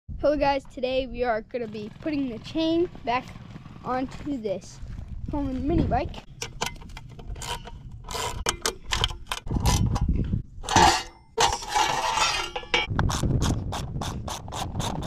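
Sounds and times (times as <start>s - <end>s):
metal clank: 6.3s - 12.9s
metal parts clinking and scraping: 6.3s - 12.9s
wrench clicking on bolts: 6.4s - 9.9s.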